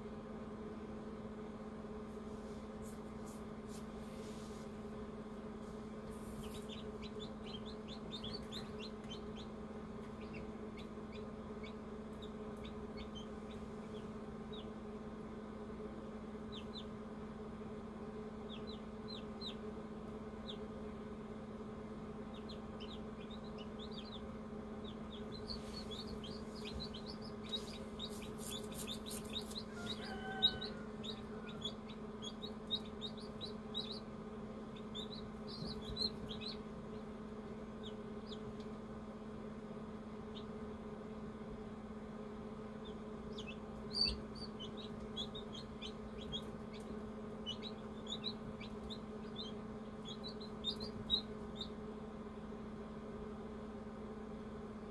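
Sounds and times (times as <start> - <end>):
incubator humming: 0.0 - 54.9
chicks peeping: 6.0 - 15.0, 16.4 - 17.4, 18.2 - 20.9, 21.8 - 38.9, 39.5 - 40.8, 42.6 - 52.0.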